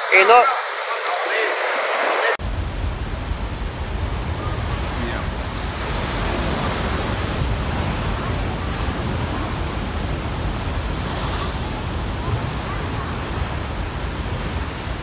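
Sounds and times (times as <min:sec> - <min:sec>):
wind rumbling on microphone: 0:00.0 - 0:15.0
waves breaking on sea wall: 0:02.1 - 0:15.0.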